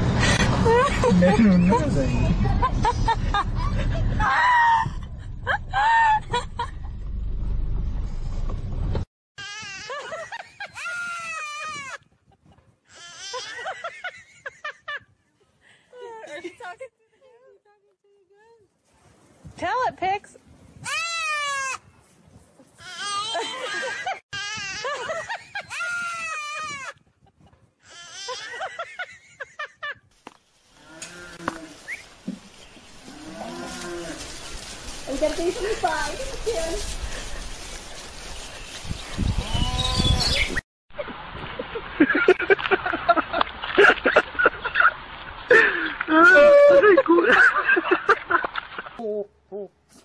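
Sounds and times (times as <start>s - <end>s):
loud low rumbling: 0.0s - 9.0s
soft outdoor noise: 0.0s - 50.0s
toddler shrieking: 10.8s - 12.0s, 20.8s - 21.8s, 25.7s - 26.9s.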